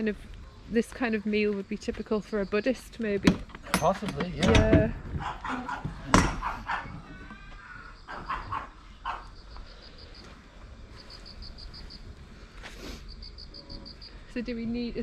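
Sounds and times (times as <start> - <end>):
crickets chirping: 0.0 - 15.0
dog barking: 5.2 - 7.0, 8.1 - 9.4.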